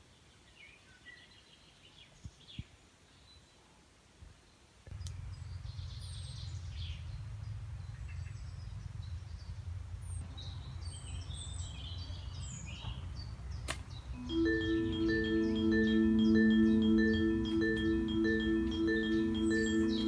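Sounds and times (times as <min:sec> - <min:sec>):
birds chirping: 0:10.9 - 0:20.0.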